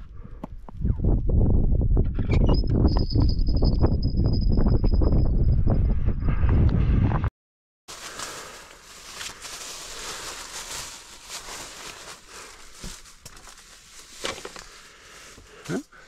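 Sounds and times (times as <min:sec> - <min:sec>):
plastic bag rustling: 0:07.9 - 0:15.7.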